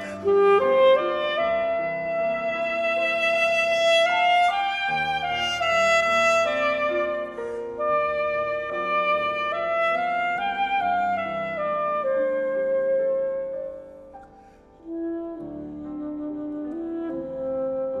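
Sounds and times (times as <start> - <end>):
alto saxophone melody: 0.0 - 18.0
piano chords: 0.0 - 18.0.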